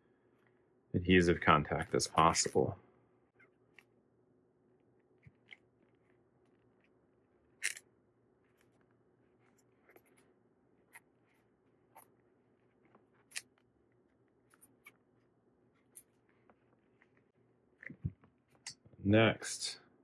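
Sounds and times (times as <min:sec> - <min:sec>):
small clicks and scrapes: 0:04.9 - 0:18.8.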